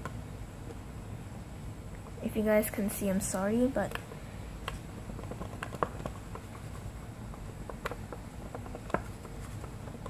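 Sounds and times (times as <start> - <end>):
cotton bud rubbing plastic: 3.9 - 10.0.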